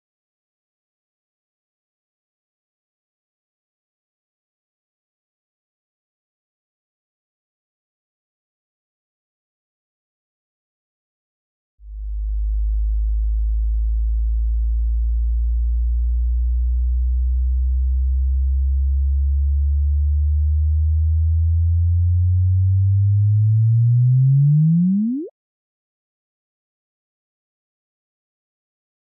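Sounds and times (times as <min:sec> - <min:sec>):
low tone rising in pitch: 0:11.9 - 0:25.3.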